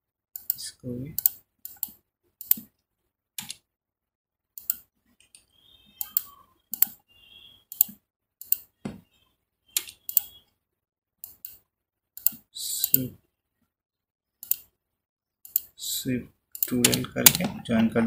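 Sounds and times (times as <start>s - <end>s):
computer mouse clicking: 1.2s - 2.7s, 3.4s - 3.6s, 4.6s - 5.4s, 6.0s - 7.0s, 7.7s - 8.7s, 9.8s - 10.4s, 11.2s - 11.6s, 12.2s - 13.1s, 14.4s - 14.7s, 15.5s - 15.7s, 16.6s - 18.0s.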